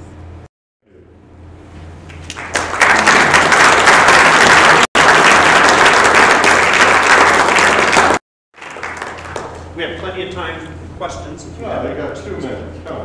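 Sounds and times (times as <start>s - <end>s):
audience applauding: 2.1s - 9.7s.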